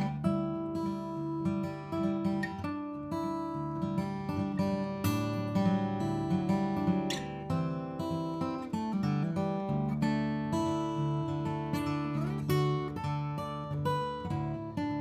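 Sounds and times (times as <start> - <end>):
acoustic guitar music: 0.0 - 15.0.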